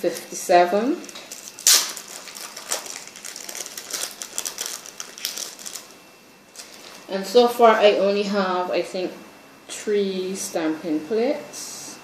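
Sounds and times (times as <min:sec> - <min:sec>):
plastic packet crinkling: 0:01.0 - 0:07.0.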